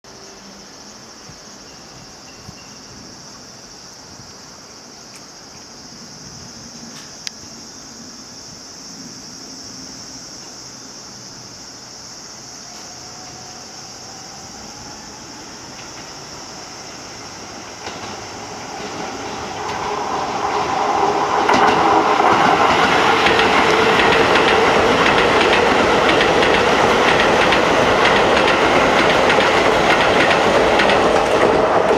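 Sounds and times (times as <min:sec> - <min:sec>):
electric train passing: 0:06.0 - 0:31.9
wheels clicking on rails: 0:17.8 - 0:31.9.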